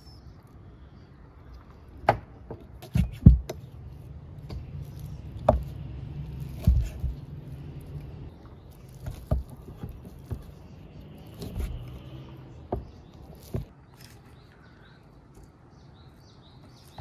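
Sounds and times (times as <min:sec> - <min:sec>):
knife cutting meat on wood: 0:05.0 - 0:07.2.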